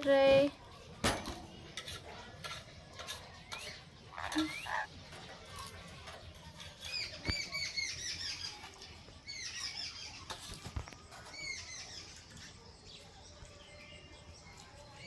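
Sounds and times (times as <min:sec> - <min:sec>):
parakeets shrill chirps: 0:03.6 - 0:04.9.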